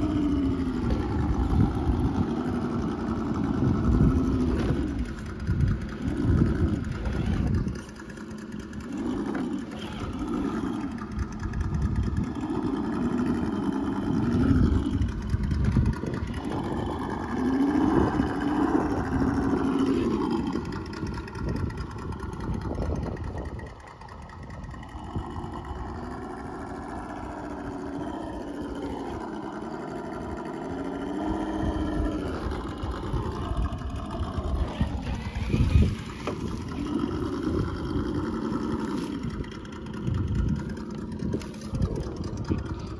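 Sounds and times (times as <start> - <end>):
toy truck electric motor whining: 25.0 - 42.2.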